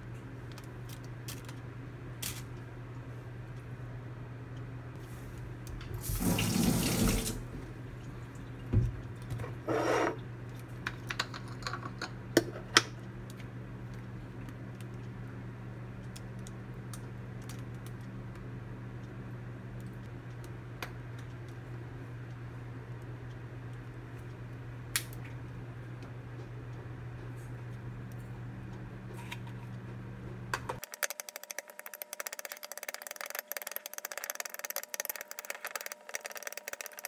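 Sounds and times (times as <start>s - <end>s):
steady low hum: 0.0s - 37.0s
water running from a tap: 6.0s - 7.5s.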